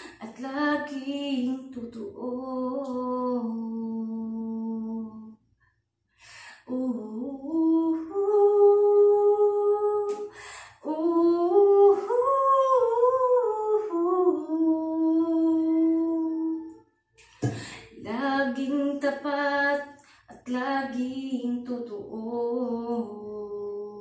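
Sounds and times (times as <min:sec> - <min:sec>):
audible breath: 0:06.1 - 0:06.7, 0:10.3 - 0:10.8, 0:17.4 - 0:18.0.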